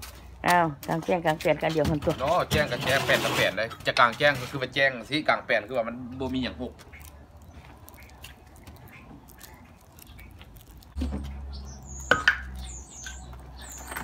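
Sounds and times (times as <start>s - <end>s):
high bird chirps: 6.8s - 14.0s.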